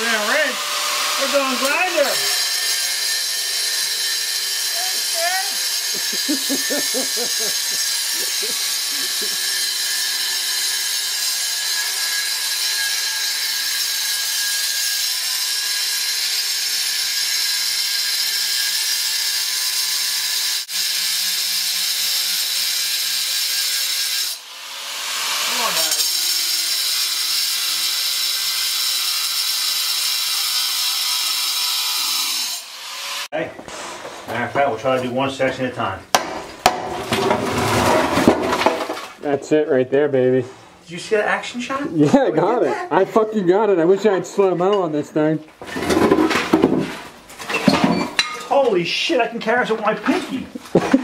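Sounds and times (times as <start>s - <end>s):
angle grinder cutting iron: 0.0s - 33.4s.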